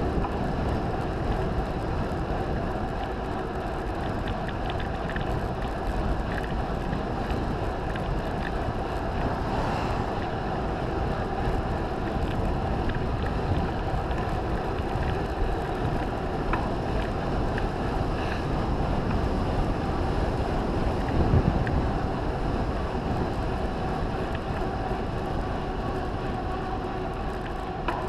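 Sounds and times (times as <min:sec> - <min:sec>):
wind buffeting microphone: 0:00.0 - 0:28.0
faint ticks: 0:02.0 - 0:08.7, 0:12.0 - 0:19.3, 0:24.2 - 0:24.7.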